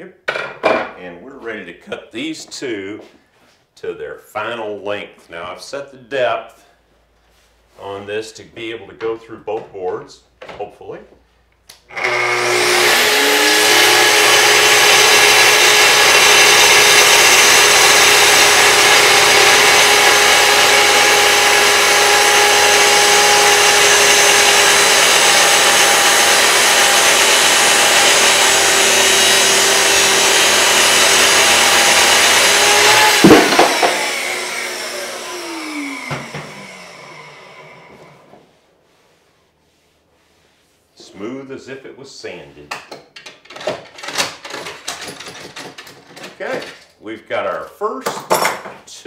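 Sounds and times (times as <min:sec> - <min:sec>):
circular saw cutting wood: 0:11.9 - 0:38.5.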